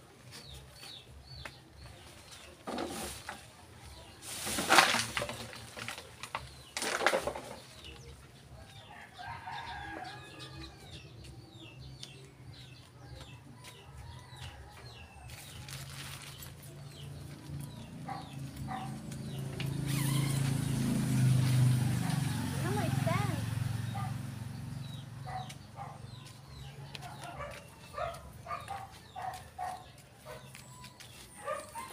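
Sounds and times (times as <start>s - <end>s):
small birds chirping: 5.2s - 31.9s.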